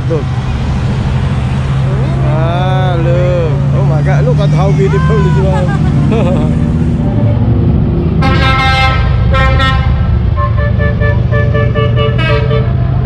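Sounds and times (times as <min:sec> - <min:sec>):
low rumble of engines: 0:00.0 - 0:13.0
vehicle horns sounding: 0:08.2 - 0:12.9.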